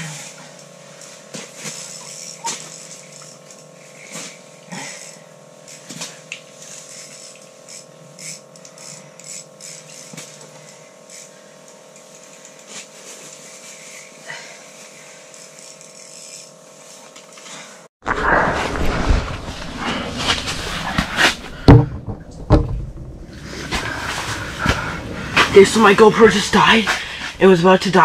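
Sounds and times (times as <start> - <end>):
fishing reel clicks and ticks: 1.7 - 3.6, 5.0 - 12.7, 15.2 - 17.4
steady hum: 18.0 - 28.0.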